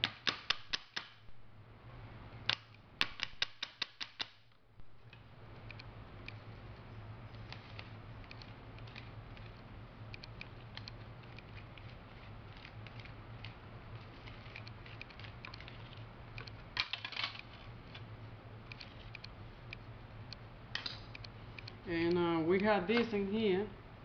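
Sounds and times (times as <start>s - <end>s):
steady low hum: 0.0s - 3.6s, 4.4s - 24.0s.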